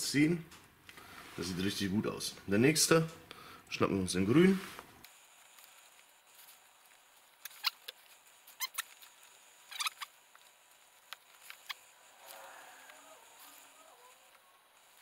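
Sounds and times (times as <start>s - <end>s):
crimping pliers clicking and squeaking: 7.4s - 9.1s, 9.7s - 10.1s.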